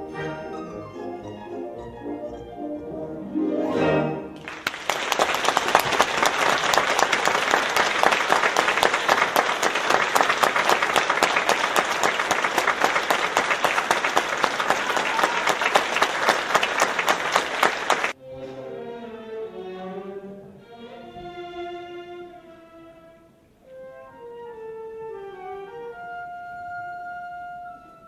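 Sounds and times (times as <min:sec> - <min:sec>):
orchestra playing: 0:00.0 - 0:14.7, 0:15.6 - 0:28.0
audience applause: 0:04.4 - 0:18.2.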